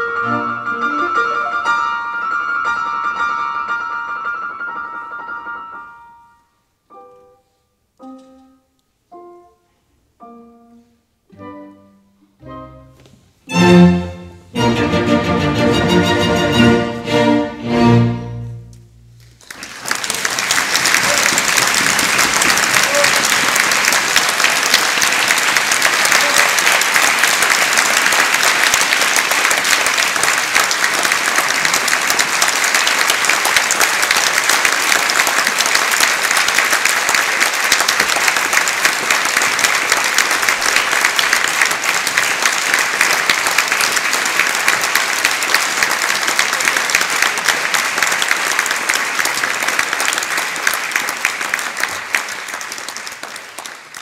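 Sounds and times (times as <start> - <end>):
audience applauding: 19.2 - 54.0.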